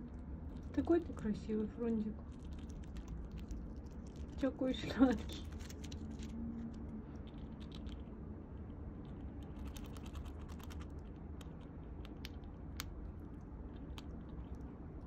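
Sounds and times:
squirrel cracking nut shells: 2.2 - 8.1, 9.0 - 15.0.

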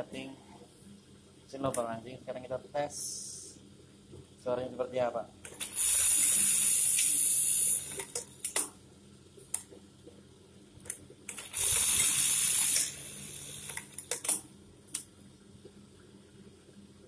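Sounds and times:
sewing machine motor humming: 11.3 - 14.1
high-speed stitching: 11.3 - 14.4.

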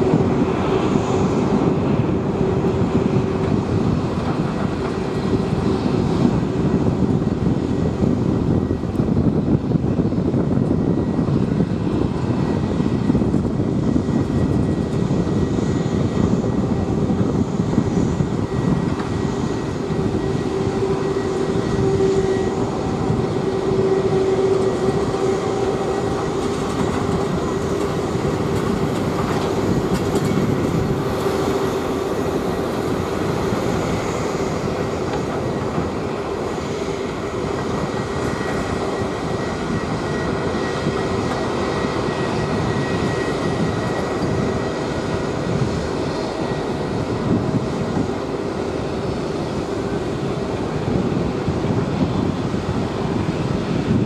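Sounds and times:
jet engines rumbling and whining: 0.0 - 54.0.

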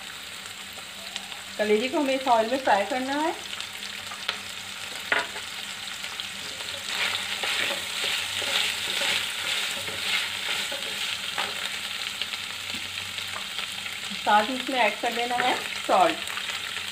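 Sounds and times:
liver sizzling in oil: 0.0 - 16.9
wooden spatula scraping pan: 6.6 - 11.8.

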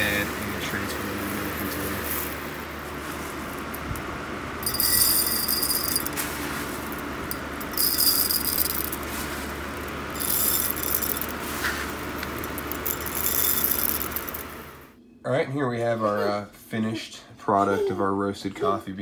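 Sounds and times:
coffee beans rattling against glass jar: 0.0 - 14.8
box fan whirring: 0.0 - 15.0.

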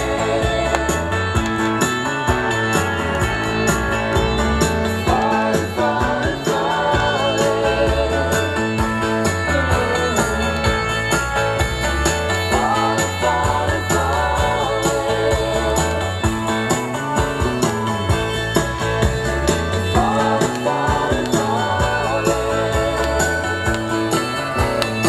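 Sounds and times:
bass line: 0.0 - 25.0
person singing with vibrato: 3.2 - 10.7, 12.3 - 16.3, 19.9 - 25.0.

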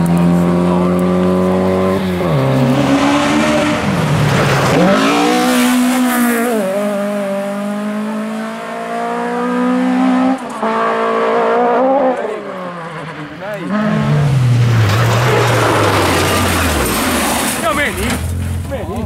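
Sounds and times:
rally car engine revving: 0.0 - 19.0.

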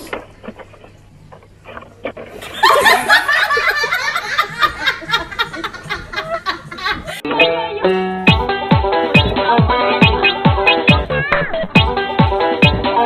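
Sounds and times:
loud continuous laughter: 2.4 - 7.3.

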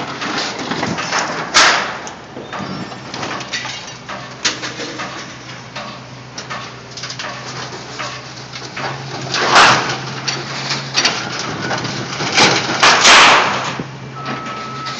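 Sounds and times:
sheet metal crunching and scraping: 0.0 - 13.9
excavator diesel engine running: 0.0 - 14.9
loud metal bang: 12.4 - 13.8.

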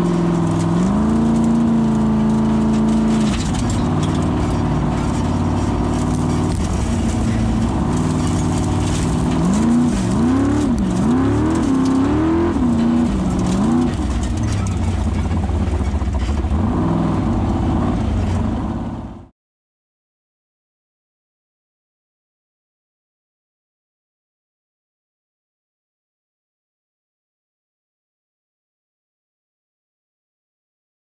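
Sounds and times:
car engine revving: 0.0 - 19.3.

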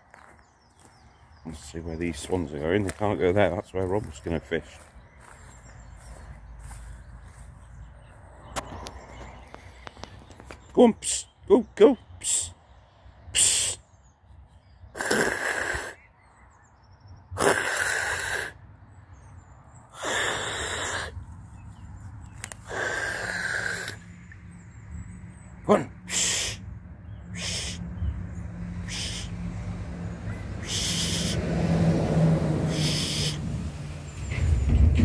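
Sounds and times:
man hissing: 13.3 - 13.8, 15.0 - 16.0, 17.4 - 18.6, 20.0 - 21.2, 22.6 - 24.0, 26.0 - 26.6, 27.3 - 27.8, 28.8 - 29.4, 30.6 - 31.5, 32.6 - 33.5.

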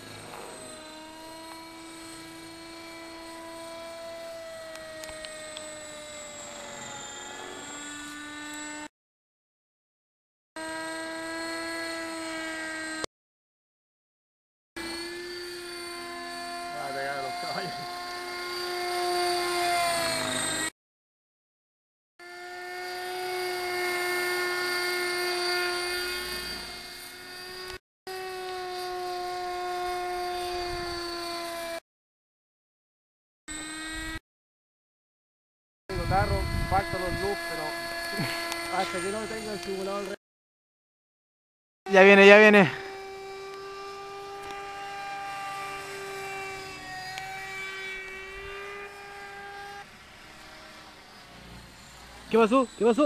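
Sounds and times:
model helicopter motor whine: 0.0 - 8.9, 10.6 - 13.1, 14.8 - 20.8, 22.2 - 31.8, 33.5 - 34.2, 35.9 - 40.2, 41.9 - 53.0.

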